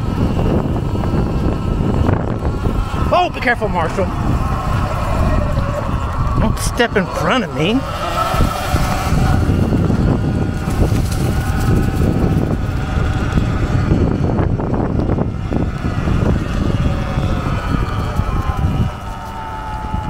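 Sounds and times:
electric motor whine: 0.0s - 20.0s
tyre and wind rumble: 0.0s - 20.0s.

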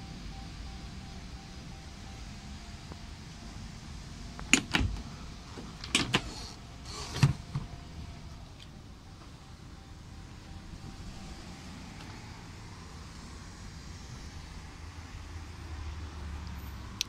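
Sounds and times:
sharp latch clicks: 4.5s - 5.0s, 5.8s - 6.3s.

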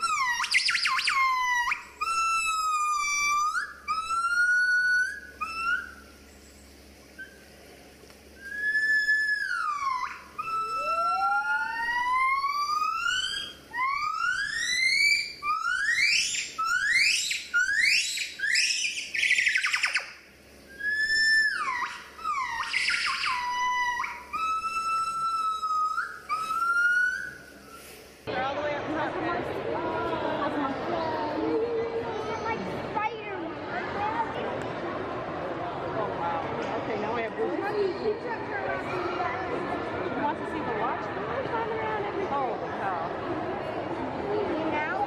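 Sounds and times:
gibbons singing: 0.0s - 6.3s, 8.4s - 27.8s.

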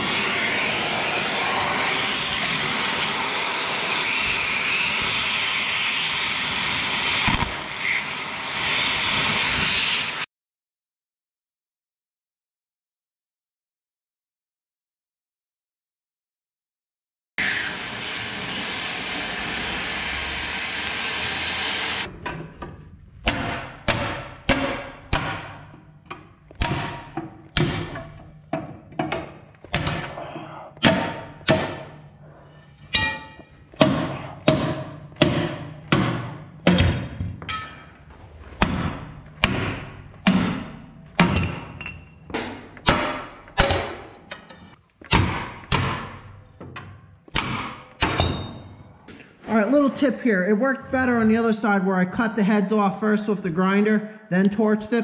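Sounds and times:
cutting torch hissing: 0.0s - 10.3s, 17.4s - 22.1s
hammer striking steel punch: 23.2s - 28.3s, 30.8s - 32.0s, 32.9s - 37.8s, 38.6s - 44.5s, 45.1s - 46.3s, 47.3s - 48.8s.

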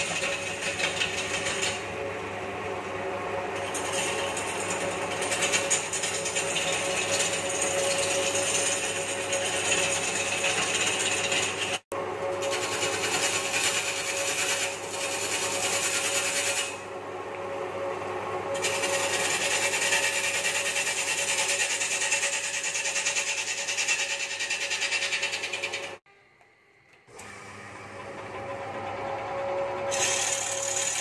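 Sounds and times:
gouge rasping on spinning wood: 0.0s - 1.9s, 3.6s - 11.8s, 12.4s - 16.8s, 18.6s - 26.0s, 29.9s - 31.0s
wood lathe humming: 0.0s - 16.9s, 18.5s - 26.2s, 26.9s - 31.0s.

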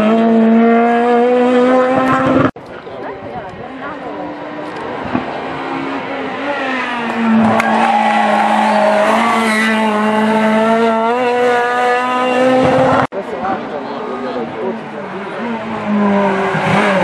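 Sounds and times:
rally car engine high revs: 0.0s - 2.6s, 4.2s - 13.1s, 15.1s - 17.0s.

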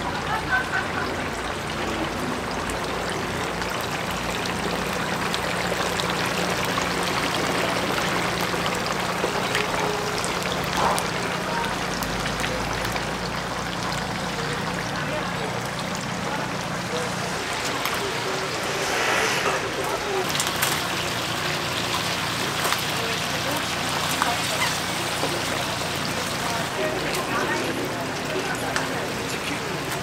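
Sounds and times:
chicken deep-frying in oil: 0.0s - 30.0s.

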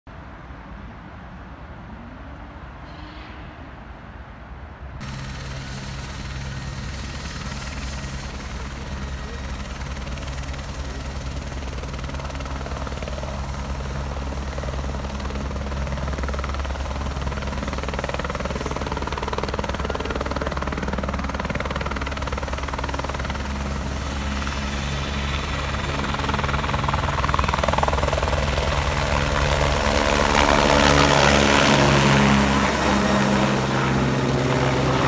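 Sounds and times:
outdoor background noise: 0.1s - 35.0s
helicopter rotor hum: 5.0s - 35.0s.

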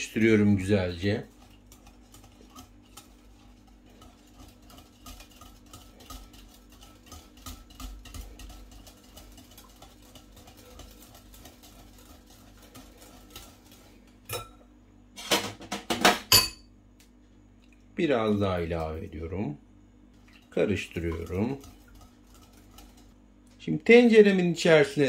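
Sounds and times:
whisk ticking against glass bowl: 0.0s - 14.4s, 20.2s - 23.2s
whisk clinking on bowl: 0.0s - 14.6s, 20.4s - 23.1s.

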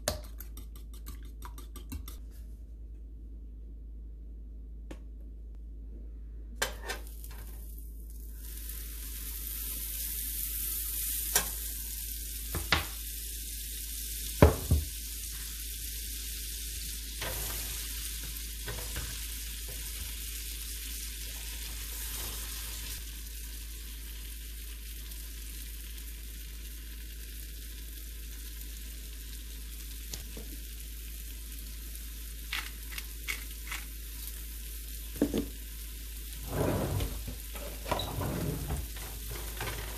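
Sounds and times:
mushrooms sizzling in a frying pan: 7.0s - 36.4s.

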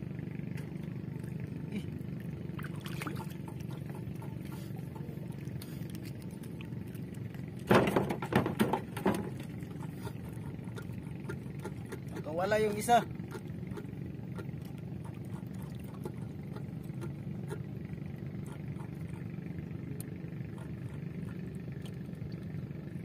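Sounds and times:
boat engine humming: 0.0s - 23.0s
water splashes and knocks: 2.2s - 17.6s.

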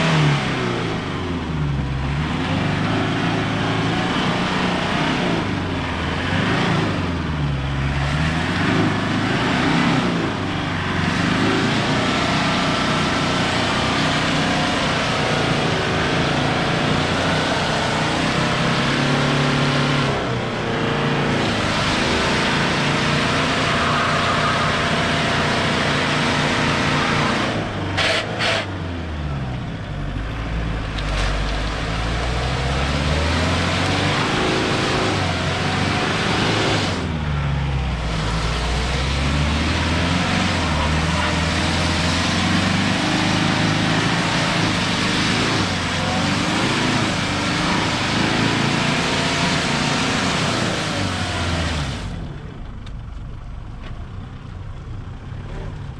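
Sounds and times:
diesel engine revving: 0.0s - 55.9s.

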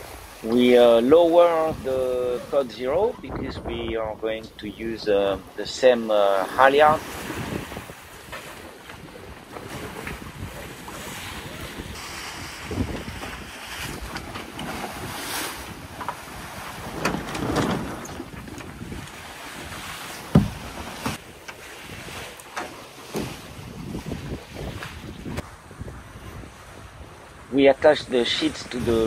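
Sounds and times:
wind buffeting microphone: 0.0s - 5.6s, 6.8s - 22.3s, 23.0s - 29.0s
sea water rushing along hulls: 0.0s - 29.0s
knocks from sail gear: 12.8s - 21.6s, 22.5s - 23.5s
sharp thump: 20.3s - 21.2s.

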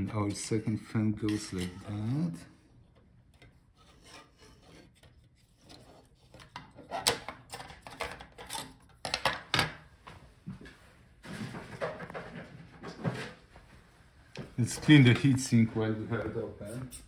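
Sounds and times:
metal and plastic scraping and clicking: 2.9s - 9.8s.

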